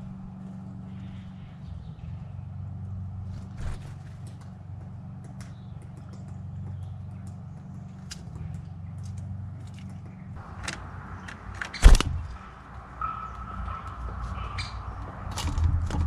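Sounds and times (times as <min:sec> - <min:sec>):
low steady rumble: 0:00.0 - 0:11.3
wings fluttering: 0:03.2 - 0:12.5.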